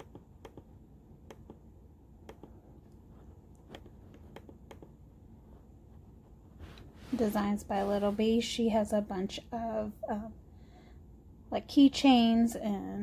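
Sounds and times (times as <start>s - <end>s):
laptop scrolling clicks: 0.0s - 2.6s, 3.5s - 5.0s
low steady hum: 0.0s - 13.0s.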